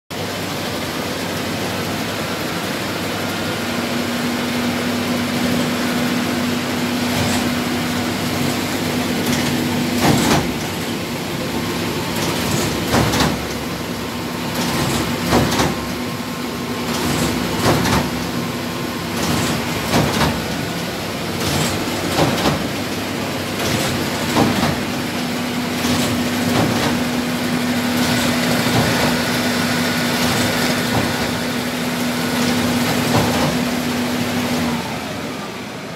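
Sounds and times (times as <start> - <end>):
machine hum: 0.2 - 35.9
sharp clicks and knocks: 8.4 - 10.9, 12.2 - 13.6, 14.5 - 16.0, 16.9 - 18.4, 19.2 - 20.7, 21.4 - 27.1, 32.4 - 33.7.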